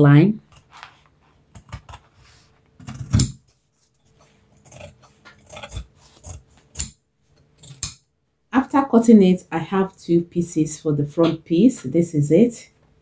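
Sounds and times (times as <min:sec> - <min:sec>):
fabric shears snipping: 0:04.2 - 0:07.0.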